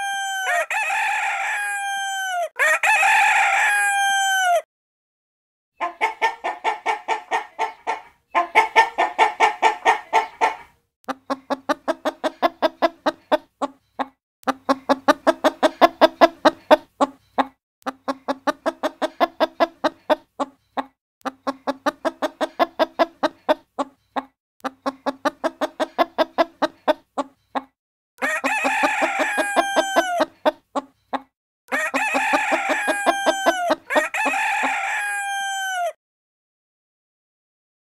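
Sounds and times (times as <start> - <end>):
rooster crowing: 0.0 - 4.7, 28.2 - 30.3, 31.7 - 36.0
hens clucking: 5.8 - 35.9.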